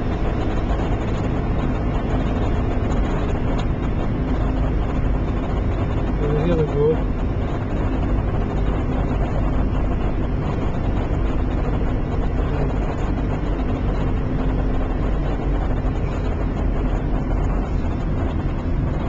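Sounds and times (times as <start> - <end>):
car engine rumble: 0.0 - 19.0
tyres on the road: 0.0 - 19.0.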